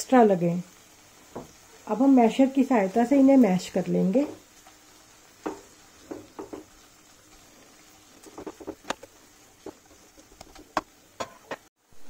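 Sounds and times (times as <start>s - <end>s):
potato masher tapping pan: 5.4s - 6.8s.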